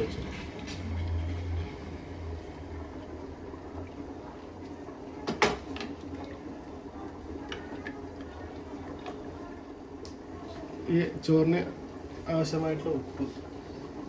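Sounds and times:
pot heating low hiss: 0:00.0 - 0:14.0.

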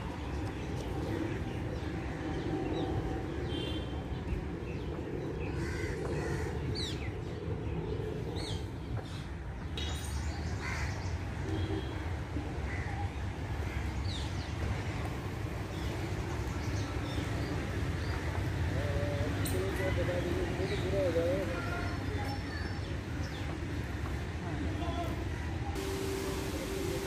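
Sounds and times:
steady low rumble: 0:25.8 - 0:27.0.

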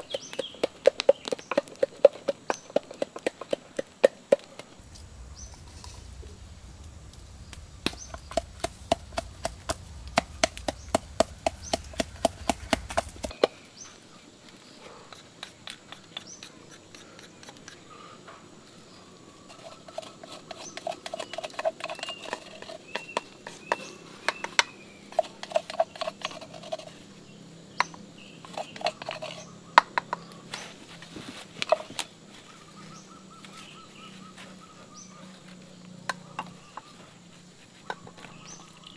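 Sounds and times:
wooden pestle pounding in mortar: 0:00.0 - 0:04.8, 0:07.8 - 0:13.4.

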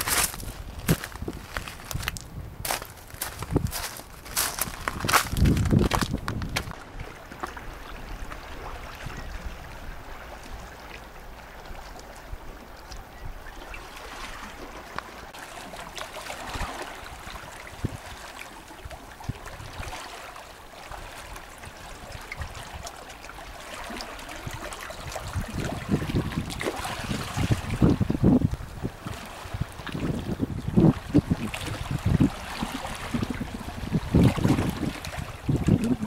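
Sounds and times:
low rumbling: 0:00.0 - 0:11.6
water lapping among rocks: 0:00.0 - 0:36.0
small water splashes: 0:03.2 - 0:36.0.

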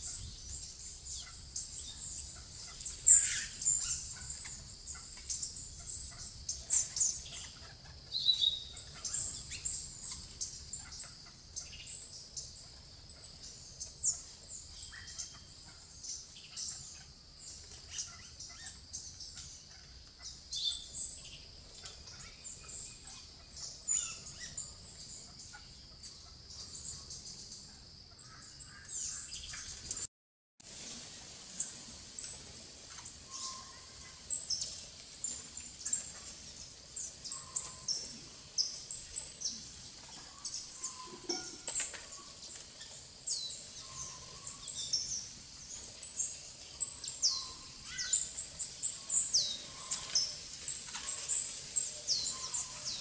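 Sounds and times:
steady high hiss: 0:28.2 - 0:53.0.

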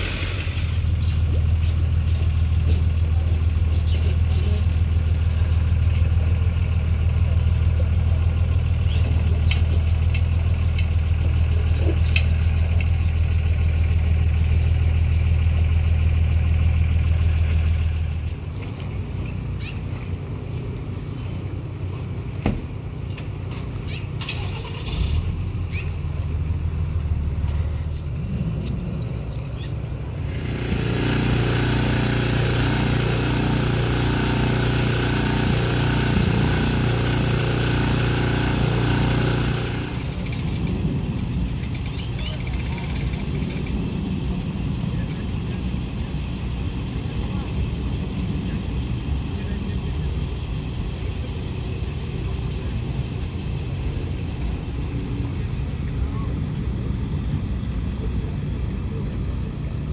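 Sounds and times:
boat motor running: 0:00.0 - 0:23.4, 0:28.7 - 0:43.6
engine idling hum: 0:00.0 - 0:59.9
wind: 0:00.0 - 0:59.9.

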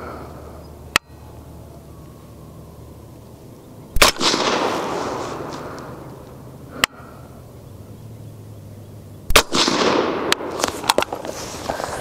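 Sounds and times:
suppressed rifle shots: 0:03.9 - 0:06.0, 0:09.3 - 0:11.2.

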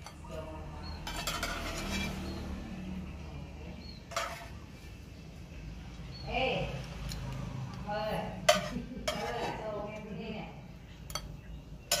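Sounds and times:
metal spoon clinking on pot: 0:00.0 - 0:02.3, 0:04.1 - 0:04.6, 0:08.4 - 0:10.1, 0:11.0 - 0:12.0.

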